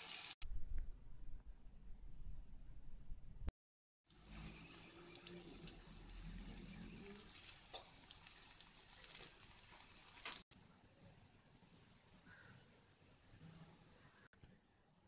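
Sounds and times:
vegetables sizzling in oil: 0:00.0 - 0:00.4, 0:04.1 - 0:10.6.

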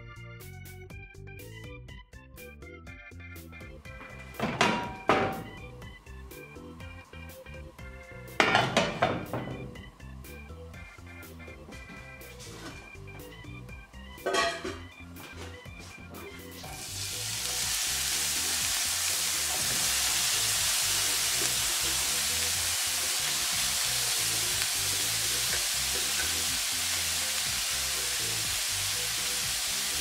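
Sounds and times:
mushrooms sizzling in frying pan: 0:04.1 - 0:11.4, 0:16.6 - 0:30.0.

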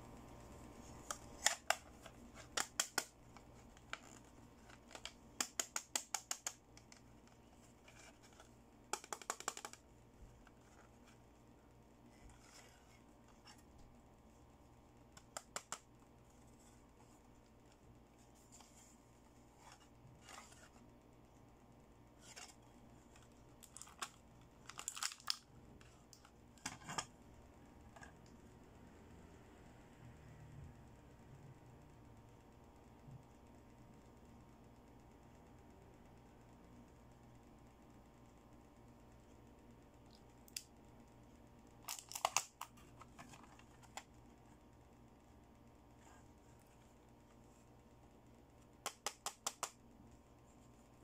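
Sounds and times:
plastic clicks: 0:08.9 - 0:09.8.

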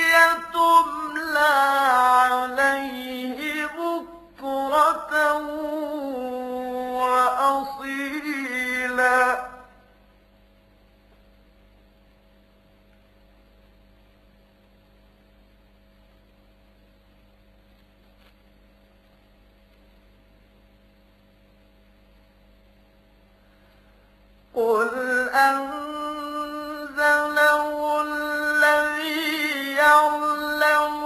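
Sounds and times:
man reciting melodically: 0:00.0 - 0:09.8, 0:24.6 - 0:31.0
faint mains hum: 0:00.0 - 0:31.0.

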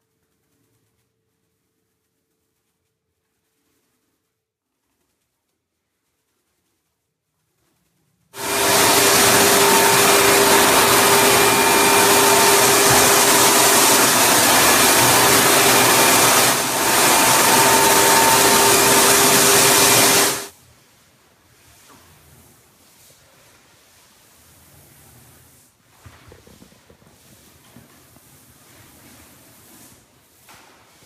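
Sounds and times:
floor sanding machine running: 0:08.4 - 0:20.5.

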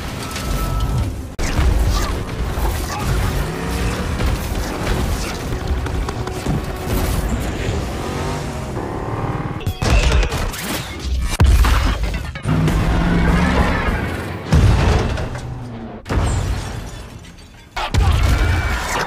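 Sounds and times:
film score music: 0:00.0 - 0:10.5
truck engine revving hard: 0:03.1 - 0:05.5, 0:06.1 - 0:09.6.

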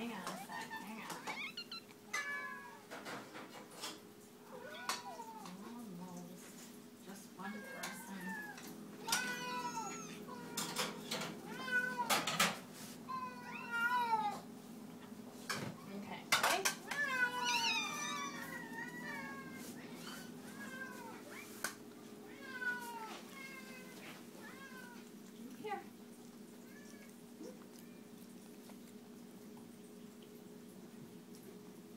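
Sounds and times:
cats meowing: 0:00.0 - 0:03.2, 0:04.4 - 0:05.6, 0:07.4 - 0:14.5, 0:16.6 - 0:25.4, 0:26.2 - 0:29.2.

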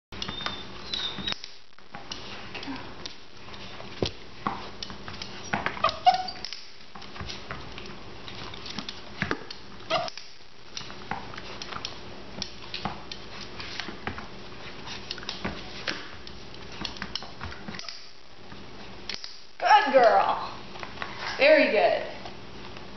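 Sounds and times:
puppy whining: 0:00.2 - 0:01.4, 0:05.3 - 0:06.6, 0:09.9 - 0:10.2.

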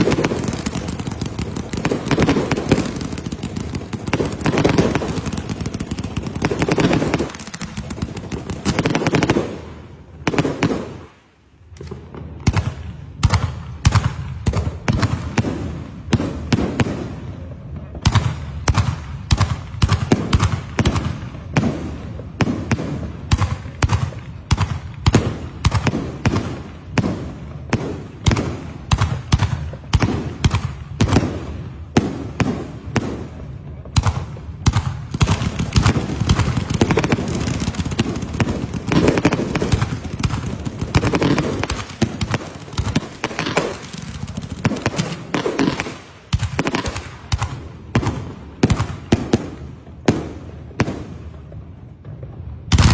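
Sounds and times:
fireworks crackling and banging: 0:00.0 - 0:52.9
aerial shells bursting: 0:35.2 - 0:45.9.

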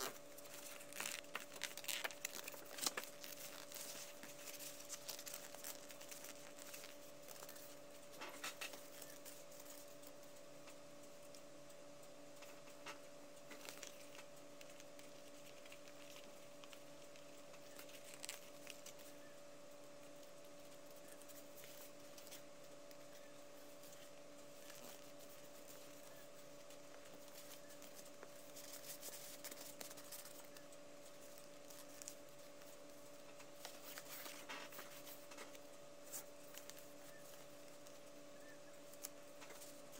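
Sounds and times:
paper rustling and tapping: 0:00.0 - 0:10.8
faint steady hum: 0:00.0 - 0:39.9.

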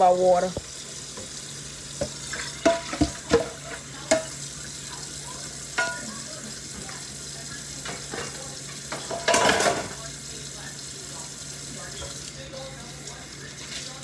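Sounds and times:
tap running into a metal sink: 0:02.0 - 0:04.4
hard items clinking at a sink: 0:07.8 - 0:10.1.

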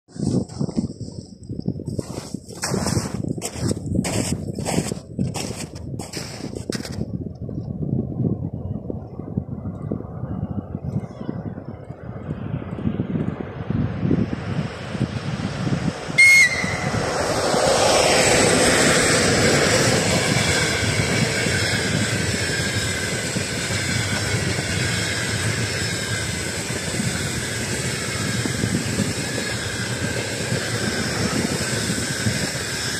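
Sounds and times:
diesel locomotive passing: 0:12.2 - 0:32.9
train wheels rolling on rails: 0:15.7 - 0:32.9
locomotive whistle toot: 0:16.2 - 0:17.1.

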